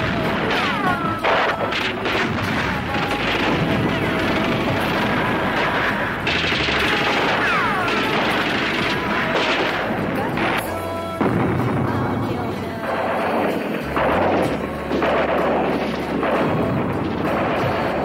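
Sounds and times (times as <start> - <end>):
guns firing in rapid bursts: 0.0 - 18.0
shells exploding: 0.0 - 18.0.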